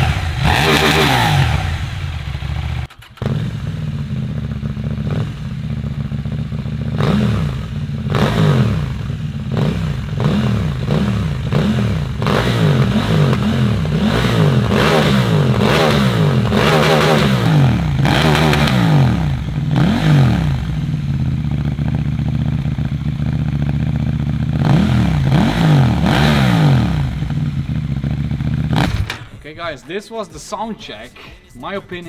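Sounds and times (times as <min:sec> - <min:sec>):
motorcycle engine idling: 0:00.0 - 0:29.5
motorcycle engine revving: 0:00.0 - 0:29.5.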